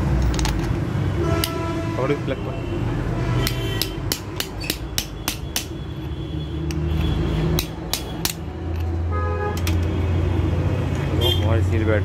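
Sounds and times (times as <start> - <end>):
sharp metallic taps: 3.4 - 5.9, 6.6 - 9.0.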